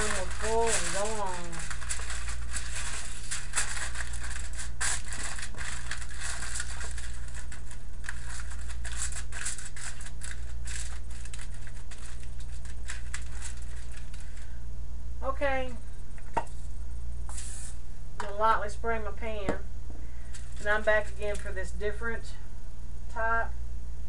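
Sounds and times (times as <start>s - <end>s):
aluminium foil crinkling: 0.0s - 14.6s, 20.2s - 21.8s
steady low hum: 0.0s - 24.0s.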